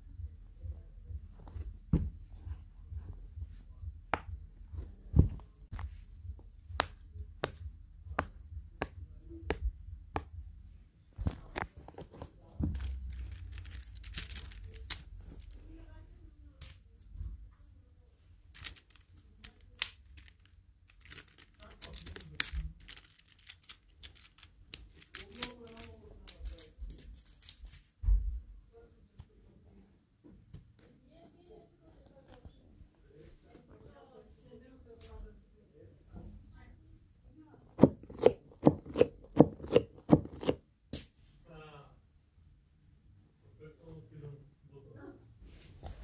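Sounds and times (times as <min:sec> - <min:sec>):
plastic cube clicking: 0:12.8 - 0:15.6, 0:18.6 - 0:27.8, 0:37.8 - 0:40.6.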